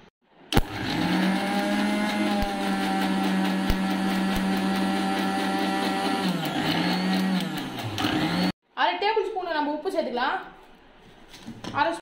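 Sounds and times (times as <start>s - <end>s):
mixer grinder motor running: 0.5s - 8.6s.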